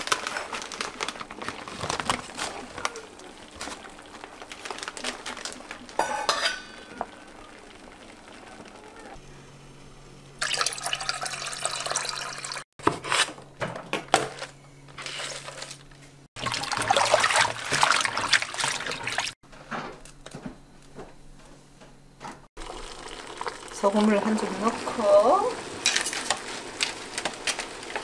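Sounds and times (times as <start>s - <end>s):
water rushing and pouring: 10.4s - 12.6s, 16.4s - 19.4s.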